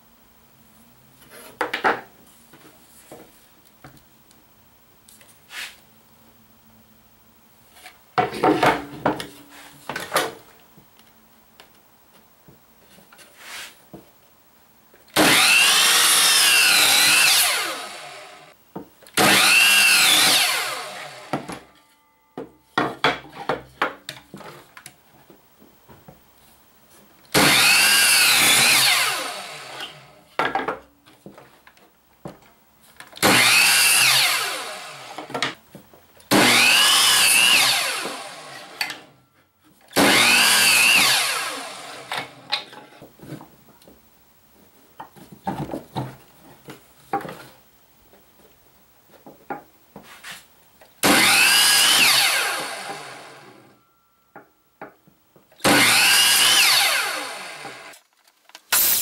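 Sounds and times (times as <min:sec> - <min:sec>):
miter saw cutting board: 0:15.2 - 0:18.5, 0:19.2 - 0:21.7, 0:27.3 - 0:30.2, 0:33.2 - 0:35.5, 0:36.3 - 0:39.0, 0:39.9 - 0:42.4, 0:51.0 - 0:53.7, 0:55.6 - 0:58.0, 0:58.7 - 0:59.0.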